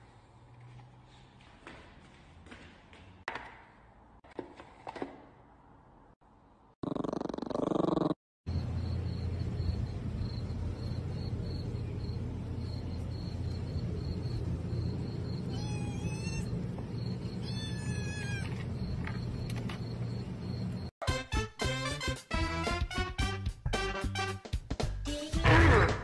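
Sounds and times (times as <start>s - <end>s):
steady low hum: 8.5s - 20.9s
kitten meowing: 15.5s - 16.5s, 17.4s - 18.5s.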